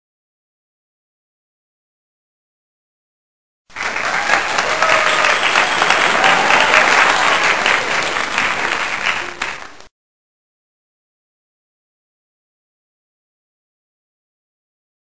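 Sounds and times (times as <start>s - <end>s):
people clapping and cheering: 3.7s - 9.9s.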